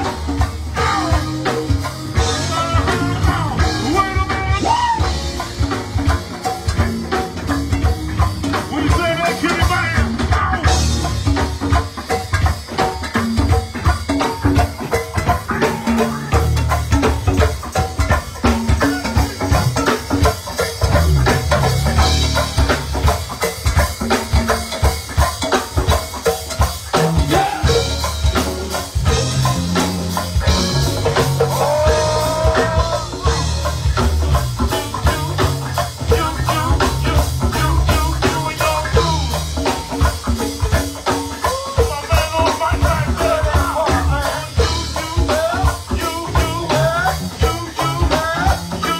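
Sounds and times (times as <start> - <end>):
bass line: 0.0 - 48.9
drum kit and congas beat: 0.0 - 48.9.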